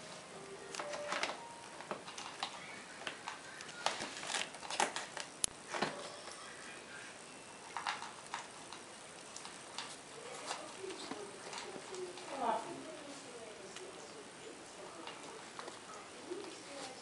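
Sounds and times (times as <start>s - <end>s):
kittens scrambling on plastic bag: 0.8s - 6.4s.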